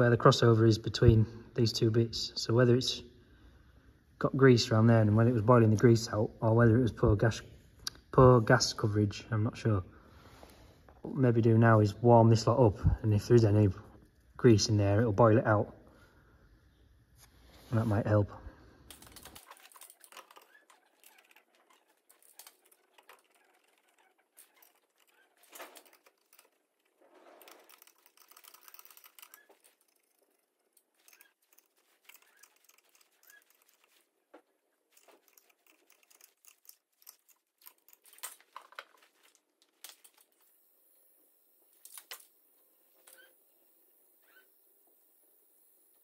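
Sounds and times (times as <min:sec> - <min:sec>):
faint metal parts clicking: 0:18.7 - 0:40.6.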